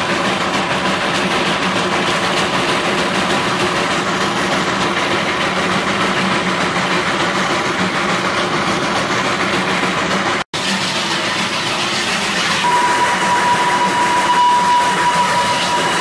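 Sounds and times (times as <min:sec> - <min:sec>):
steam locomotive running on track: 0:00.0 - 0:16.0.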